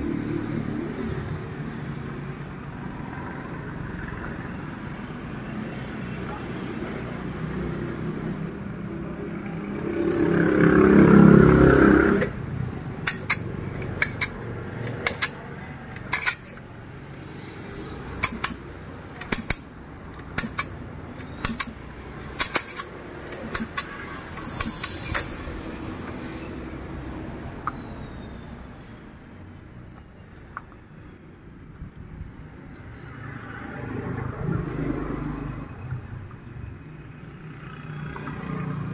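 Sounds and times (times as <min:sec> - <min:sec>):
tools clicking on metal: 0:13.0 - 0:16.7, 0:18.2 - 0:18.6, 0:19.2 - 0:25.4.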